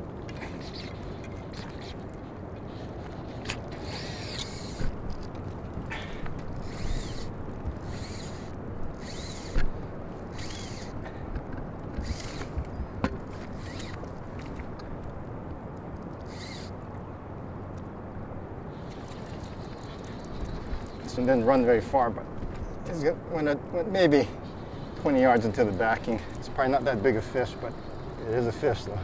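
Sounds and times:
fly reel ratcheting: 0:00.4 - 0:02.0, 0:03.4 - 0:05.3, 0:06.6 - 0:09.7, 0:10.3 - 0:11.0, 0:12.0 - 0:12.5, 0:13.2 - 0:14.1, 0:16.1 - 0:16.8, 0:18.8 - 0:21.5, 0:25.0 - 0:29.0.

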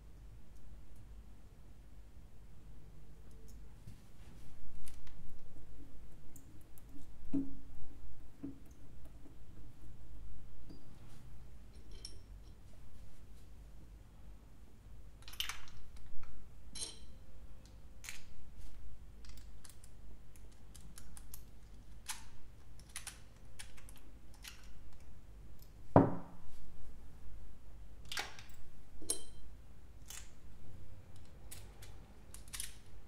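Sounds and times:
light metallic clink: 0:11.8 - 0:12.6, 0:16.8 - 0:17.2, 0:29.0 - 0:29.4
metal parts clicking and tapping: 0:31.1 - 0:33.0.

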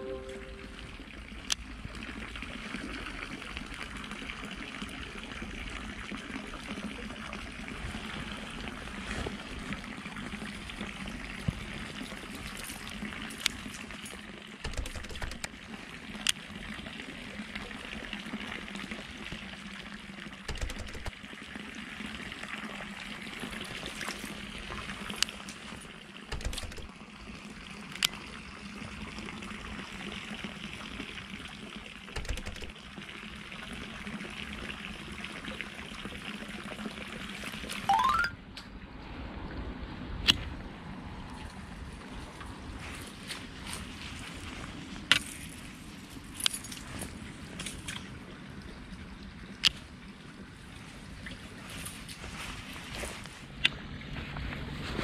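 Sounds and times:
running trickling water: 0:00.0 - 0:38.4
fishing reel clicks: 0:20.5 - 0:21.1, 0:26.3 - 0:26.9, 0:32.2 - 0:32.7.

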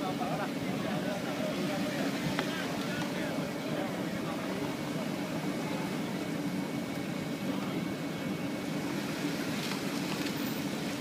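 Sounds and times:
car engine running low: 0:00.0 - 0:11.0.

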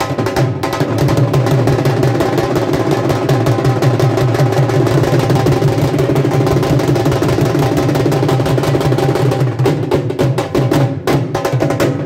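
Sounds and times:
drums beating fast rhythm: 0:00.0 - 0:12.0.

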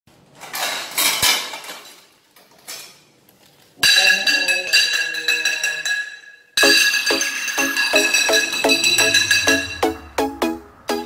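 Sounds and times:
metal pots and pans clanking: 0:00.4 - 0:03.0, 0:03.8 - 0:10.0
jingly music with quick beat: 0:06.6 - 0:11.0.

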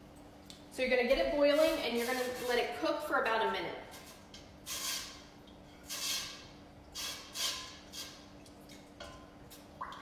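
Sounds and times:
wooden spoon stirring saucepan: 0:01.1 - 0:03.2.

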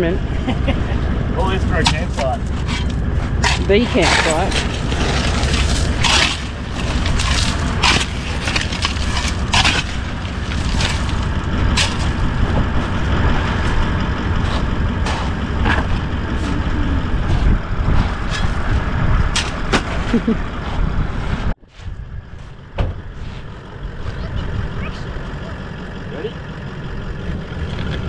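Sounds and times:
low rumble: 0:00.0 - 0:28.0
shovel scraping into gravel: 0:01.8 - 0:12.2.

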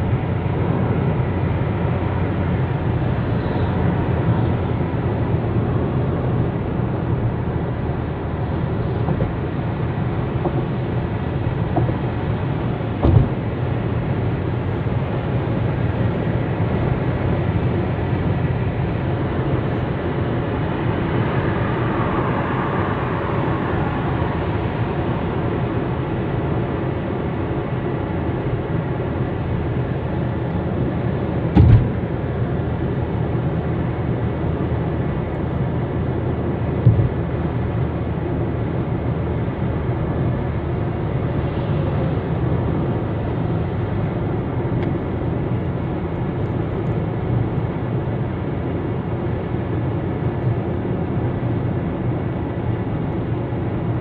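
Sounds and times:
car road and engine noise: 0:00.0 - 0:54.0
thump: 0:13.0 - 0:13.4, 0:31.5 - 0:32.0, 0:36.8 - 0:37.1.

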